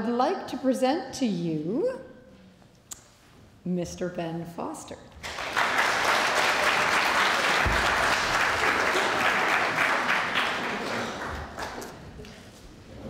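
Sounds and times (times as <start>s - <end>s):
audience applauding: 5.2s - 11.9s.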